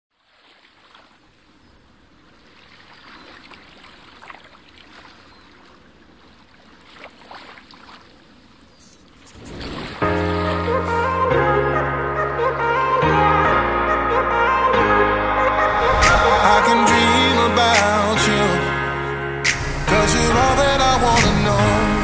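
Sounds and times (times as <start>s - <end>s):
seawater lapping and splashing: 0.1s - 11.0s
loud music: 12.1s - 22.0s.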